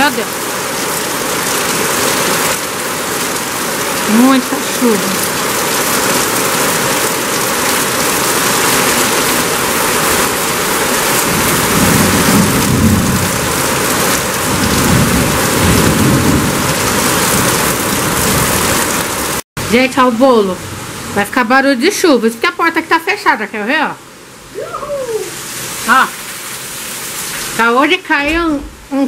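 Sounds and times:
heavy rain falling: 0:00.0 - 0:29.0
thunder rumbling: 0:11.1 - 0:19.1, 0:28.2 - 0:29.0.

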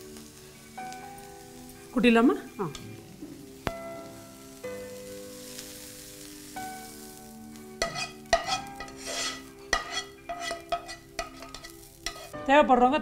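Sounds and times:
background music with held notes: 0:00.0 - 0:13.0
metal spoon scraping a pan: 0:07.8 - 0:12.4.

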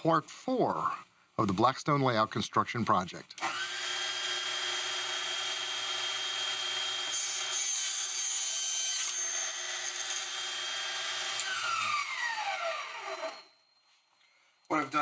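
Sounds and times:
saw blade cutting wood: 0:03.4 - 0:13.5
table saw whining: 0:03.4 - 0:13.8.

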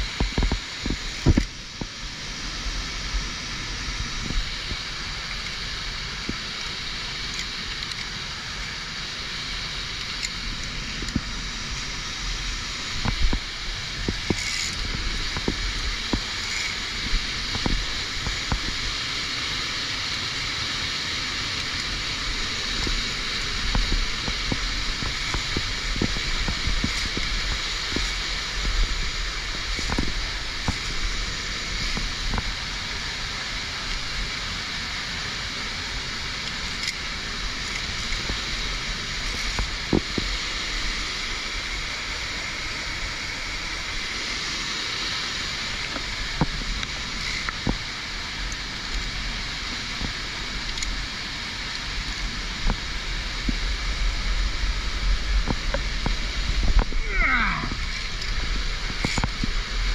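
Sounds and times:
waterfall rushing: 0:00.0 - 0:59.9
carabiners clicking on steel cable: 0:14.2 - 0:15.5, 0:16.2 - 0:16.8, 0:36.4 - 0:38.3.

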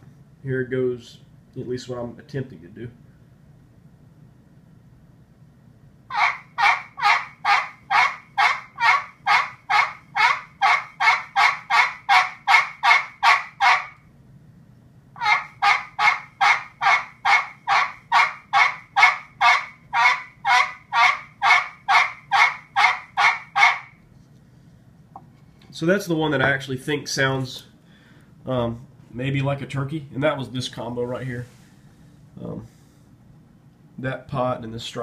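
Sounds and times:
turkey pot call strokes: 0:06.1 - 0:14.1, 0:15.2 - 0:24.1.

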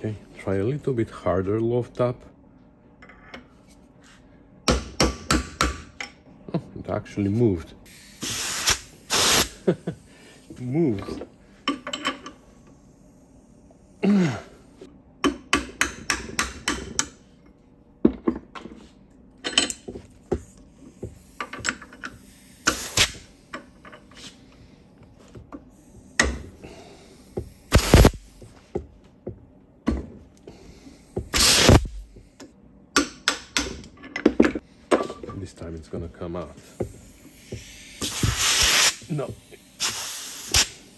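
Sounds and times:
compressed air blasts: 0:07.9 - 0:09.6, 0:22.2 - 0:23.5, 0:25.9 - 0:28.5, 0:31.1 - 0:32.2, 0:36.6 - 0:40.9.

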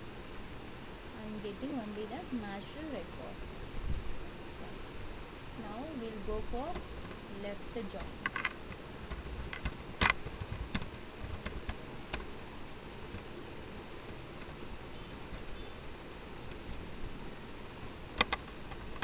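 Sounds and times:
keyboard typing: 0:06.6 - 0:07.2, 0:07.9 - 0:12.4, 0:13.1 - 0:13.3, 0:14.0 - 0:16.9, 0:17.8 - 0:19.0
sharp clicks: 0:17.8 - 0:19.0.

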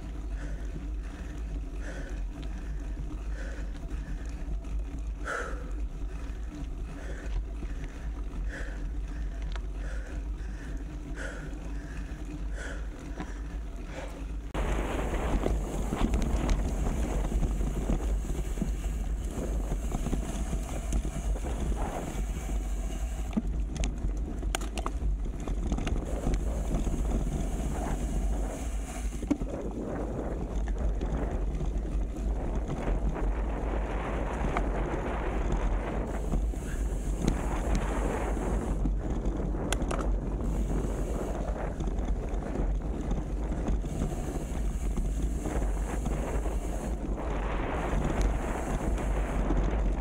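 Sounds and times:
steady rushing noise: 0:00.0 - 0:50.0
wind rumbling on microphone: 0:00.0 - 0:50.0
faint clicks: 0:06.5 - 0:11.4.

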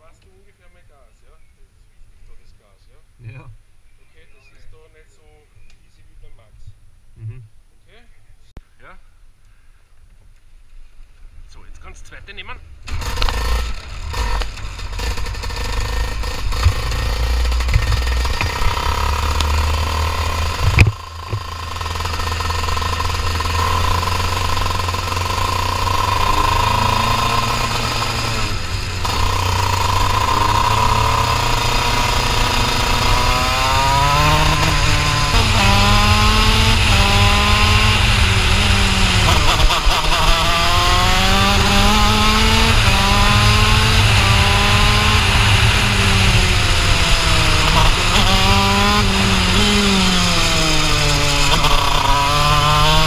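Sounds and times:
kart engine running and revving: 0:12.8 - 0:53.0.

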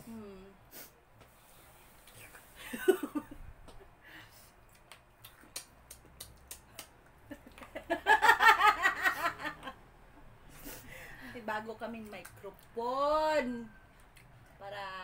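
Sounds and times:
women laughing loudly: 0:02.7 - 0:03.4, 0:07.3 - 0:09.7.

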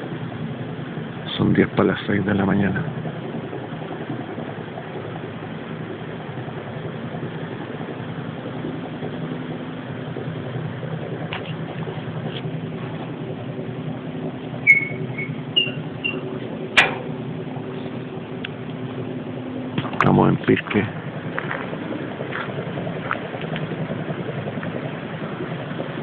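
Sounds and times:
steady low drone: 0:00.0 - 0:26.0
short high chirps: 0:14.6 - 0:16.3
sharp click: 0:16.8 - 0:17.1.

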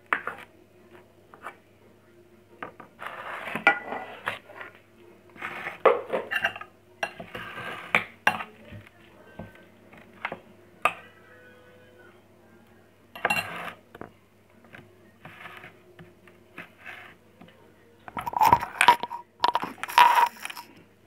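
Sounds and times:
dishes clattering: 0:03.6 - 0:04.1, 0:05.8 - 0:08.4, 0:13.2 - 0:13.8, 0:18.1 - 0:20.8
spoon clinking on ceramic: 0:18.2 - 0:20.7.

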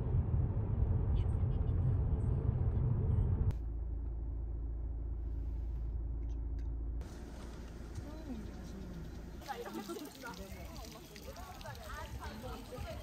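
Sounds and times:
steady low hum: 0:00.0 - 0:09.5
car road rumble: 0:00.0 - 0:09.7
hissy outdoor ambience: 0:07.0 - 0:13.0.

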